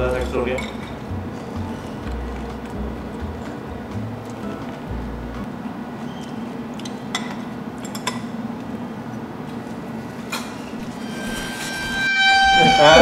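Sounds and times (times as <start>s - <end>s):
utensils clinking against dishes: 0.0s - 2.7s, 6.0s - 8.7s, 9.6s - 13.0s
steady low hum: 0.0s - 13.0s.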